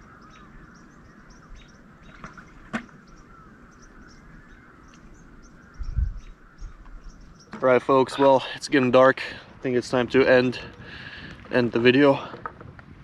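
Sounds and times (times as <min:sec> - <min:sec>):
high bird chirps: 0:00.0 - 0:07.6.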